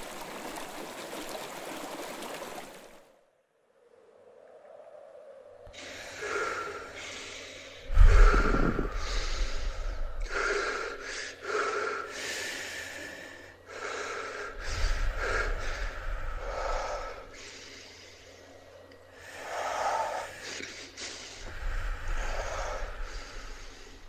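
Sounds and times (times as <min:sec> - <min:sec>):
person gasping breaths: 0:05.8 - 0:18.5
low rumble: 0:07.9 - 0:10.4.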